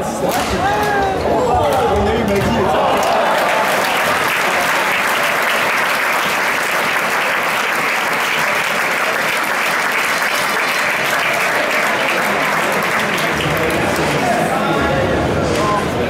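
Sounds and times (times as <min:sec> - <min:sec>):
crowd applauding: 0:02.3 - 0:14.4.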